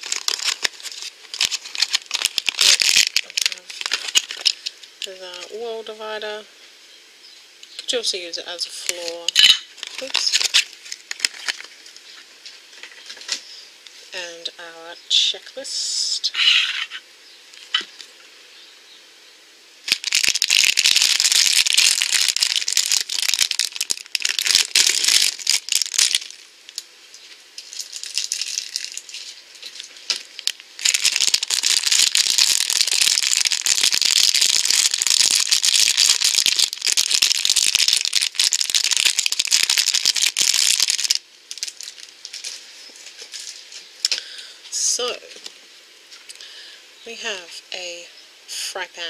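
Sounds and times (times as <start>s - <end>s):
plastic packaging crinkling: 0.0s - 5.5s, 8.8s - 13.4s, 19.8s - 44.2s.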